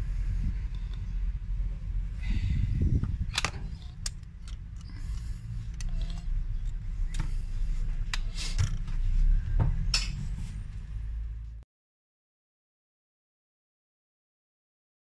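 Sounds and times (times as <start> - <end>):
steady low rumble: 0.0 - 11.6.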